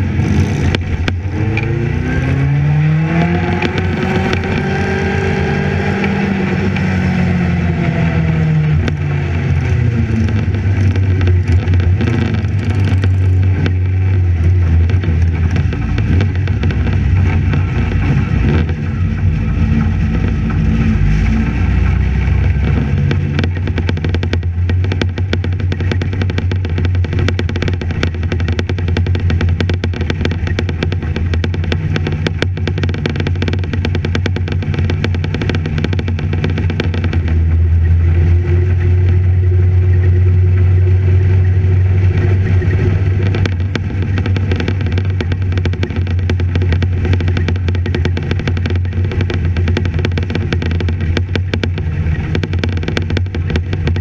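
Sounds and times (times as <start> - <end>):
engine running at low revs: 0.0 - 54.0.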